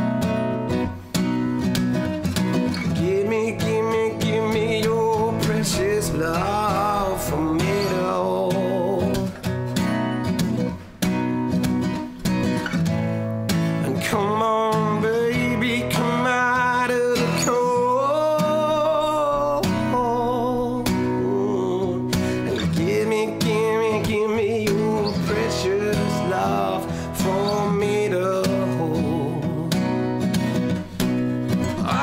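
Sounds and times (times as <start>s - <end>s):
acoustic guitar strumming: 0.0s - 32.0s
man singing wordless notes: 2.8s - 10.2s, 13.8s - 30.2s, 31.6s - 32.0s.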